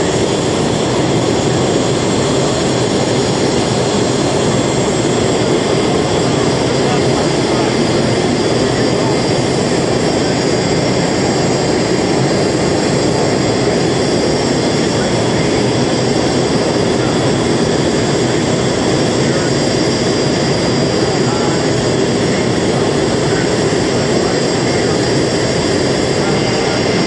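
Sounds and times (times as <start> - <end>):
aircraft engine noise: 0.0 - 27.0.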